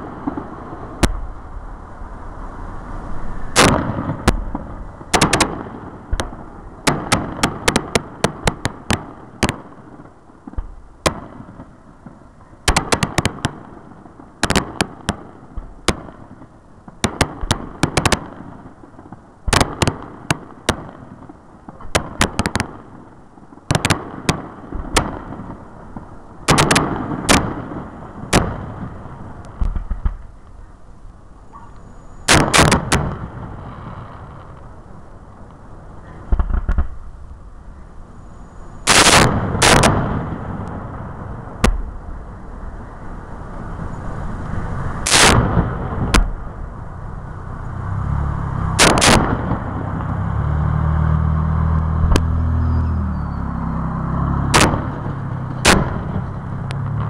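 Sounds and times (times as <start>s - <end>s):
firework shells bursting: 3.6s - 23.0s, 23.6s - 30.5s, 31.5s - 34.7s, 38.5s - 42.0s, 45.0s - 46.4s, 48.7s - 50.2s, 54.5s - 56.8s.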